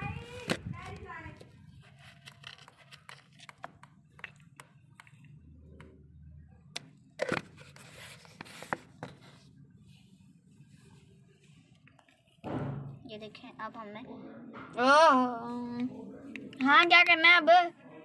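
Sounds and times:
loud knock: 12.4 - 13.0.

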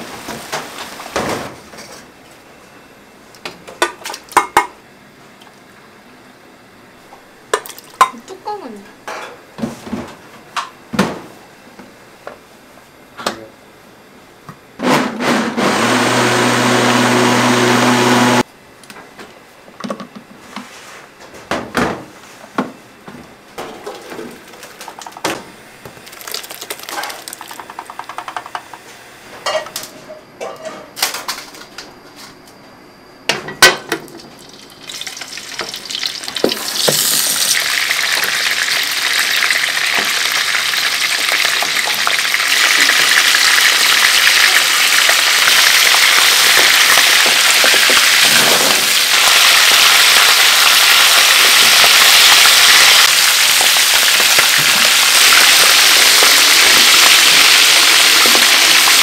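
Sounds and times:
electric kitchen machine running: 14.8 - 18.5, 23.8 - 28.9, 34.2 - 59.0
frying oil sizzling: 26.0 - 28.4, 34.2 - 59.0
dishes and utensils clattering: 29.4 - 31.4.

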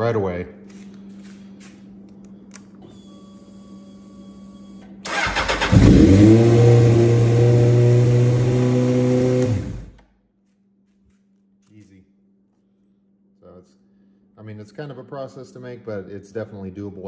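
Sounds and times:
motorcycle starter cranking: 5.1 - 6.3.

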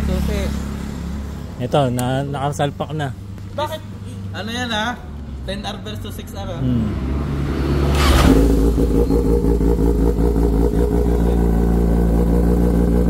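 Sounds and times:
motorcycle engine starting and idling: 7.9 - 13.0.

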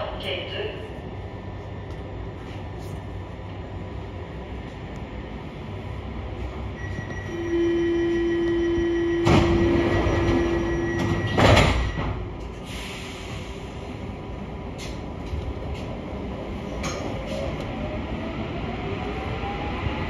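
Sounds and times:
door warning tone: 6.8 - 12.3.

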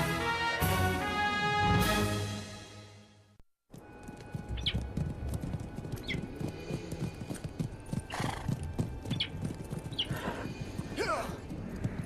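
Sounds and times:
horse hooves on dirt: 3.7 - 12.0.

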